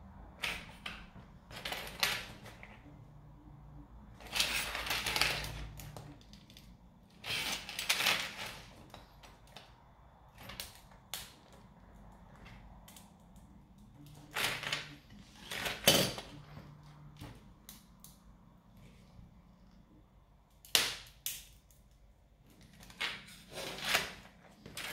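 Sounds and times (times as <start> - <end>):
plastic crackling and snapping: 0.4 - 2.7, 4.2 - 16.4.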